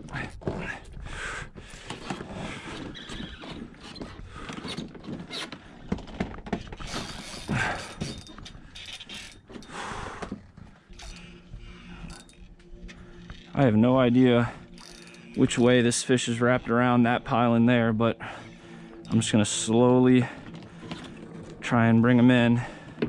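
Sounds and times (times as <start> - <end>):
fishing reel drag clicking: 14.7 - 15.4.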